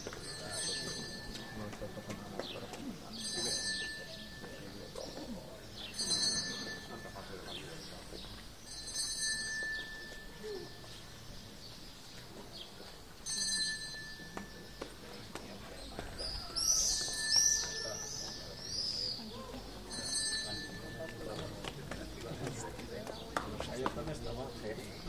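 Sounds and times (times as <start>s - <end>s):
murmur of outdoor crowd: 0.0s - 25.0s
high chirping bird calls: 15.9s - 19.7s.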